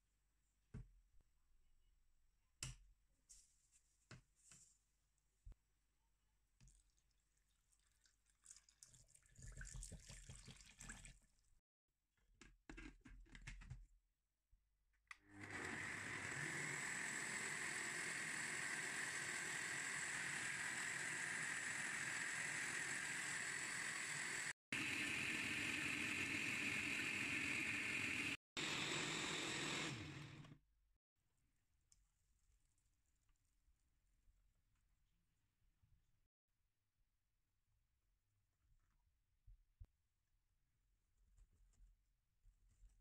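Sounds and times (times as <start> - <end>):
water pouring into blender jar: 6.7 - 11.4
blender motor running: 15.2 - 30.6.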